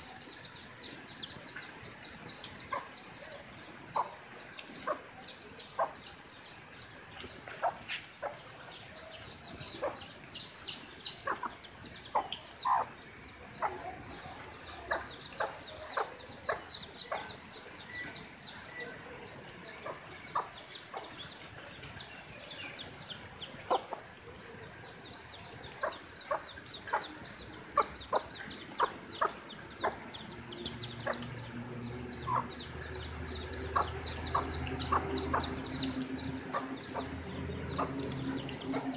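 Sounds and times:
chicks peeping: 0:00.2 - 0:24.1, 0:24.8 - 0:38.9
hen clucking: 0:09.7 - 0:12.9, 0:25.8 - 0:30.2, 0:32.2 - 0:38.9.

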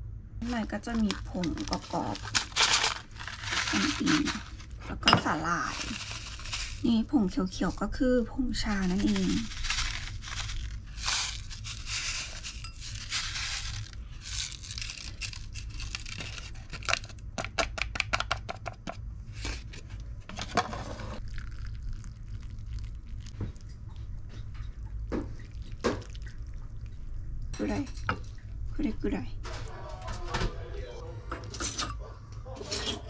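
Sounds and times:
seasoning sachet crinkling: 0:00.4 - 0:17.6
sachet shaken and tapped ticks: 0:00.8 - 0:04.8, 0:05.5 - 0:07.8, 0:08.6 - 0:19.0.

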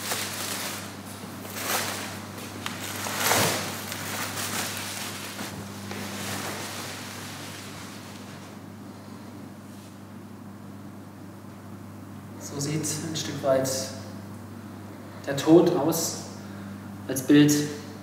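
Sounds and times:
plastic sheeting rustling: 0:00.0 - 0:08.6
steady low hum: 0:00.0 - 0:18.0.

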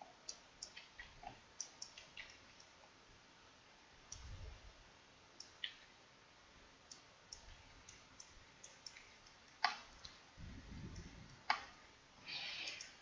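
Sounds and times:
computer mouse clicking: 0:00.0 - 0:02.8, 0:06.9 - 0:10.2, 0:10.8 - 0:13.0.

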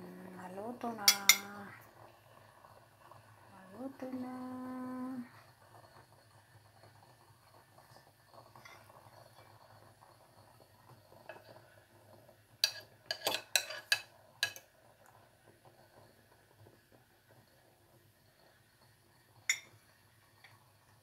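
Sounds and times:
fork clinking against pot: 0:12.6 - 0:14.6.

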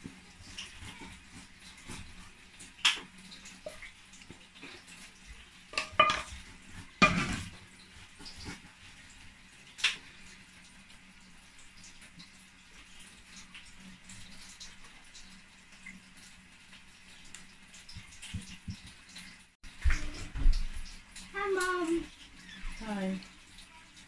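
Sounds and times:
utensil clinking on frying pan: 0:05.8 - 0:06.3.

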